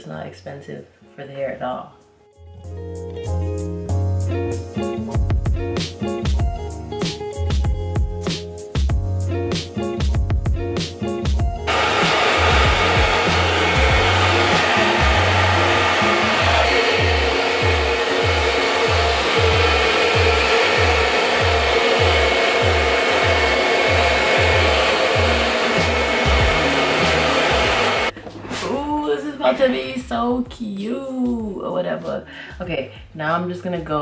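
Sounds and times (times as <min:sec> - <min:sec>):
background music beat: 0:02.0 - 0:28.5, 0:29.4 - 0:34.0
hair dryer blowing: 0:11.7 - 0:28.2.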